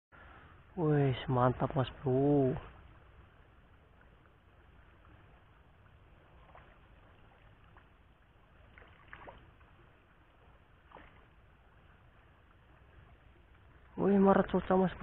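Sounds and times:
faint steady hiss: 0.2s - 15.0s
small fish splashes: 2.8s - 13.9s.

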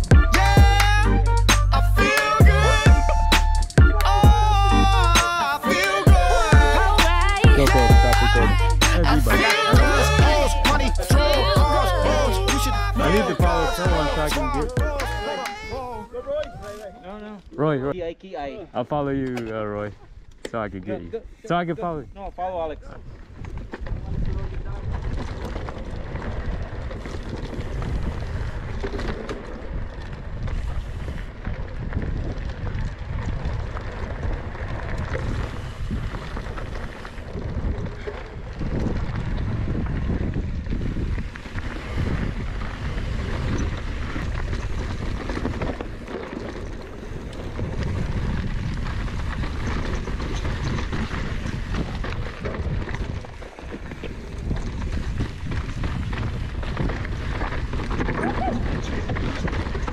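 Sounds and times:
bike tyres on dirt trail: 3.7s - 59.9s
wind rumbling on microphone: 19.0s - 59.9s.

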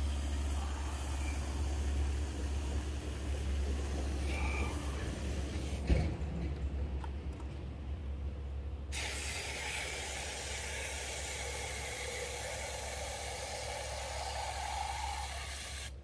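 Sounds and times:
hose water spraying into can: 8.9s - 16.0s.

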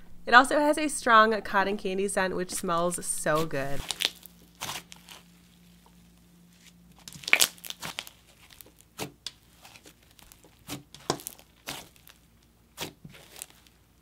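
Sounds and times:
slime crackling and popping: 3.8s - 14.0s.

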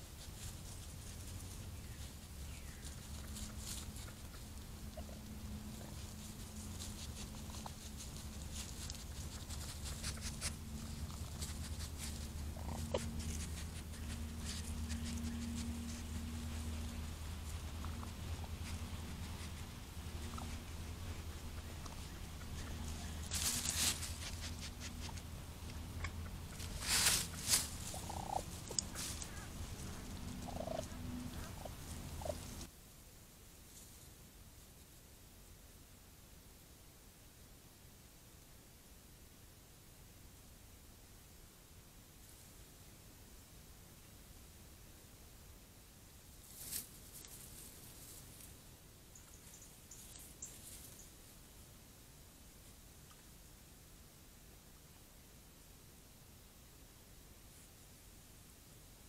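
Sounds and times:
low hum: 0.4s - 32.7s
small animal calls: 1.5s - 32.7s.

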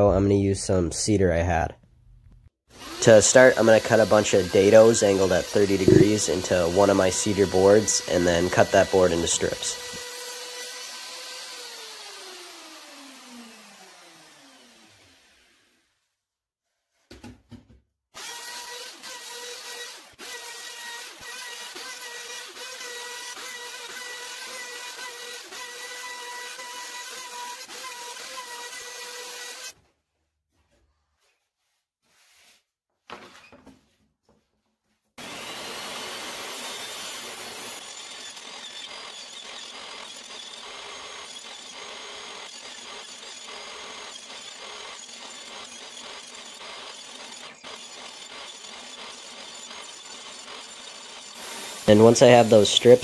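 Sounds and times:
router whining: 2.7s - 15.6s, 18.2s - 29.8s, 35.2s - 53.0s
table saw ripping wood: 2.7s - 15.8s, 35.2s - 53.0s.

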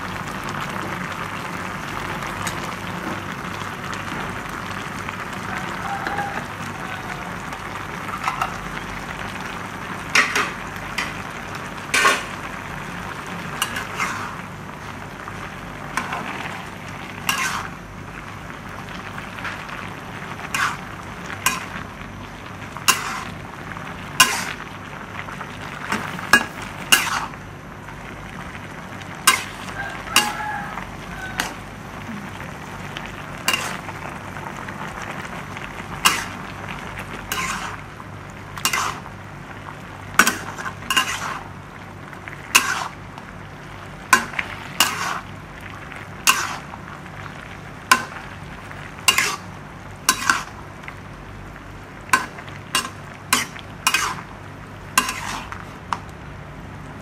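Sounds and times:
food sizzling in a metal pan: 0.0s - 56.1s
spatula scraping a pan: 13.6s - 14.4s, 17.2s - 17.7s, 20.5s - 20.8s, 21.4s - 21.7s, 22.9s - 23.4s, 24.2s - 24.6s, 26.4s - 27.3s, 29.2s - 30.6s, 33.5s - 33.8s, 36.0s - 36.4s, 37.3s - 37.8s, 38.6s - 39.0s, 40.2s - 41.5s, 42.5s - 43.0s, 44.1s - 45.3s, 46.2s - 46.7s, 49.1s - 49.5s, 50.1s - 50.6s, 52.2s - 54.3s, 55.0s - 55.6s.

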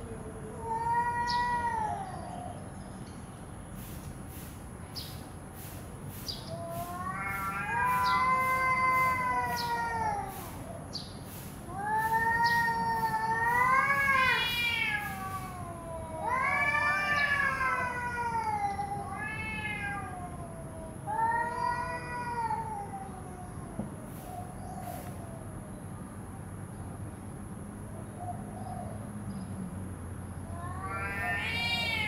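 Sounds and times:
cats yowling: 0.0s - 2.6s, 6.4s - 10.9s, 11.6s - 25.6s, 30.4s - 32.0s.

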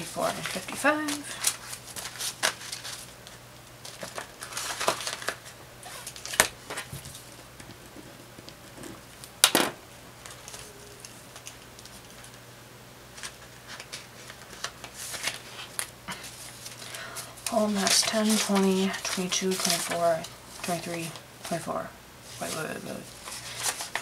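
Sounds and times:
banknotes rustling: 0.0s - 7.3s, 13.1s - 24.0s
plastic pouch crinkling: 0.2s - 6.9s, 13.2s - 21.6s.

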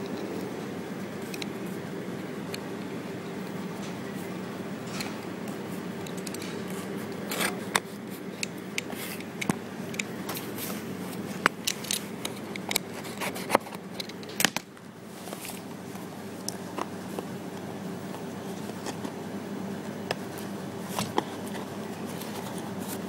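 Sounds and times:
cardboard and paper crackling: 20.3s - 23.0s.

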